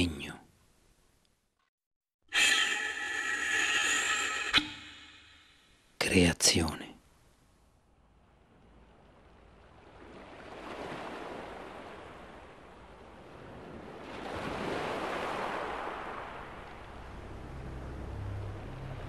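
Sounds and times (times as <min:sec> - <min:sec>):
sea waves washing onto shore: 0:09.0 - 0:19.0.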